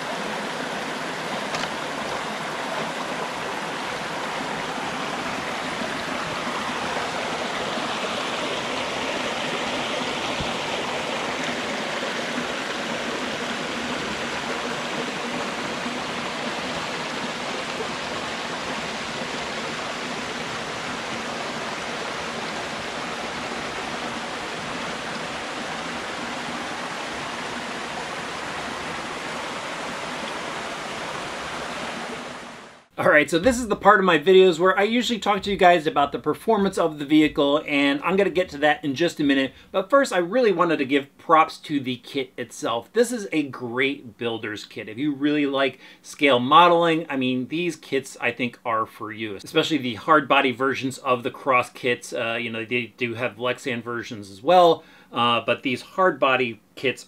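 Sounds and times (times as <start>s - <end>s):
creek water rushing over rocks: 0.0s - 38.7s.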